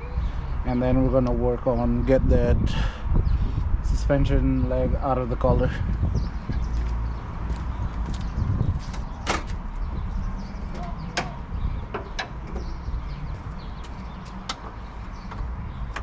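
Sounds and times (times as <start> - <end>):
wind on microphone: 0.0 - 16.0.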